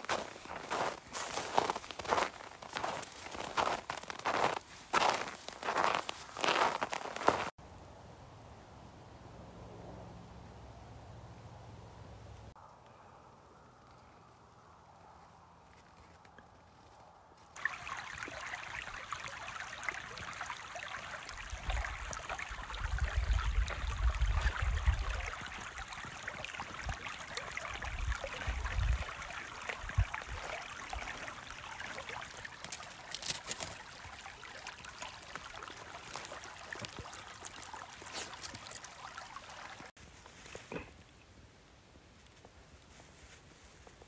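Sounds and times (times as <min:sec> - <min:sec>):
creek running over stones: 0:00.0 - 0:07.6, 0:17.4 - 0:41.3.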